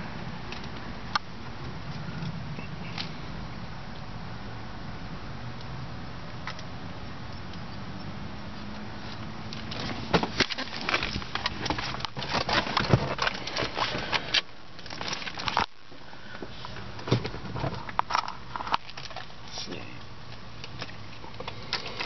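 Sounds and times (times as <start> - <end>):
rustling and knocking in car: 9.6 - 15.7, 16.4 - 19.2.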